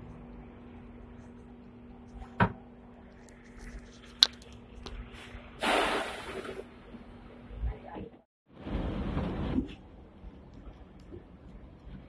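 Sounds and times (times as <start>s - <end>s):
steady low hum: 0.0s - 5.6s
loud hiss: 5.6s - 6.6s.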